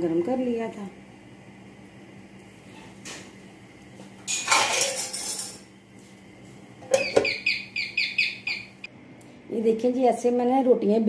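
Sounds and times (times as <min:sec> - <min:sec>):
metal lid scraping and clattering: 0:04.3 - 0:05.6
lid squeaking against pan rim: 0:06.9 - 0:07.6.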